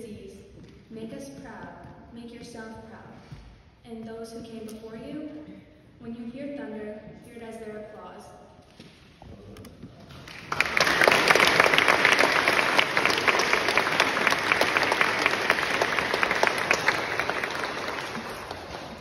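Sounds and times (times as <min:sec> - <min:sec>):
audience applauding: 0:10.0 - 0:19.0.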